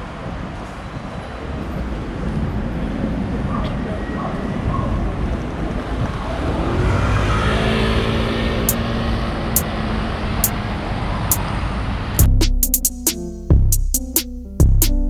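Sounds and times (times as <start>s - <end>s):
city street traffic: 0.0s - 14.8s
vehicle engine pulling past: 6.1s - 12.2s.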